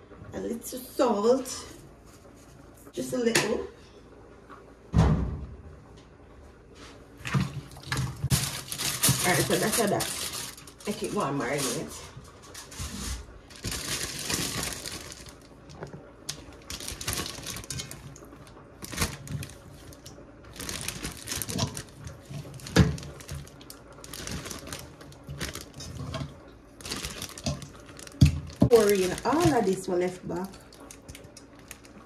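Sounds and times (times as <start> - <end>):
plastic bag crinkling: 7.8 - 12.0, 12.6 - 32.0.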